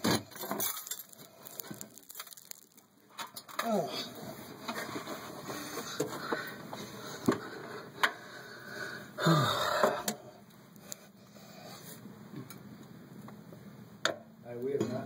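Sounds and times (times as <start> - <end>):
person grunting: 9.2 - 10.1.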